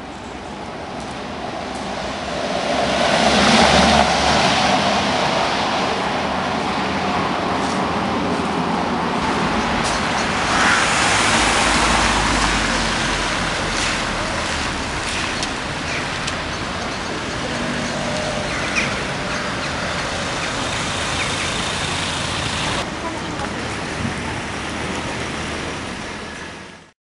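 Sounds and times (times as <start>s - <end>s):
street traffic noise: 0.0s - 26.9s
car driving past: 9.4s - 16.4s.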